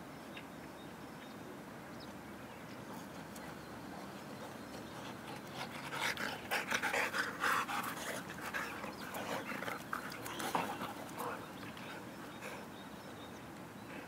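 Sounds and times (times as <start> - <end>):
dogs panting hard: 4.4 - 12.7.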